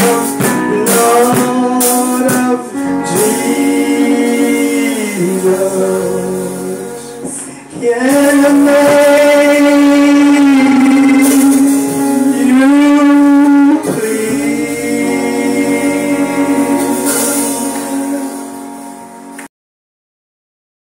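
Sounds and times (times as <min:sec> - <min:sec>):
man and woman singing gospel: 0:00.0 - 0:18.8.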